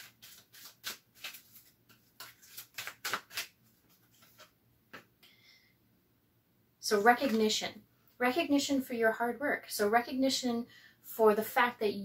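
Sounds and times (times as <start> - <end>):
cards being shuffled by hand: 0.0 - 5.1.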